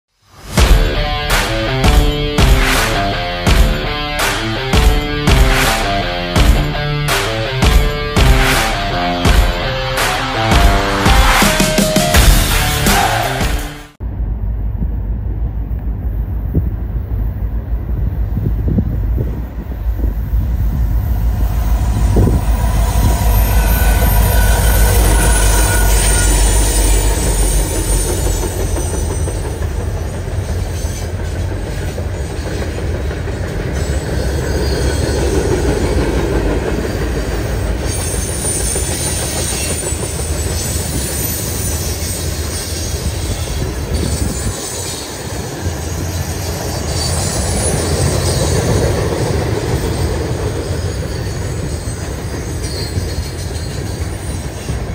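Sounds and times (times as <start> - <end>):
diesel locomotives rumbling: 0.3 - 54.9
train wheels clattering on rails: 17.9 - 54.9.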